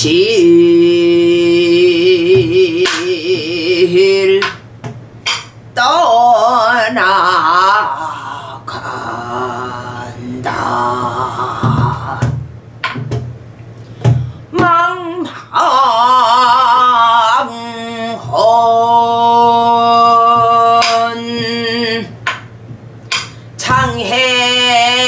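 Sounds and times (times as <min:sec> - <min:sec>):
woman singing with vibrato: 0:00.0 - 0:04.6, 0:05.7 - 0:12.4, 0:14.4 - 0:22.3, 0:23.1 - 0:25.0
barrel drum strokes: 0:10.4 - 0:14.8.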